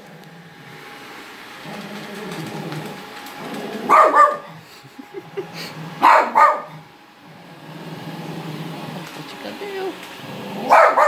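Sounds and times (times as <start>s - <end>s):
steady low hum: 0.0s - 11.0s
small dog barking: 3.8s - 4.6s, 6.0s - 6.8s, 10.7s - 11.0s.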